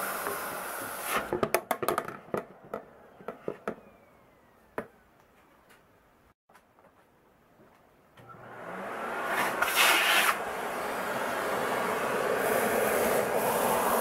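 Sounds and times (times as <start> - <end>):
plastic clicks and knocks: 1.3 - 3.8
dust extractor spinning down: 8.2 - 14.0.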